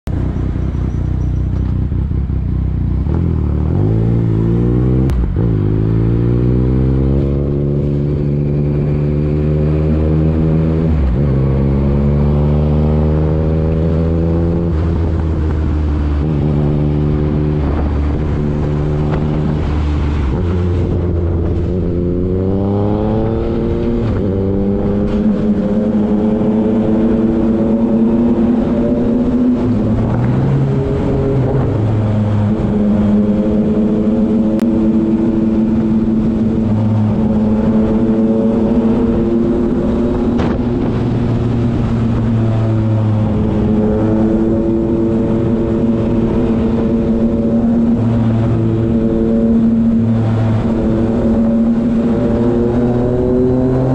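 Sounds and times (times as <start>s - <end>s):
motorcycle engine accelerating: 0.1s - 53.9s.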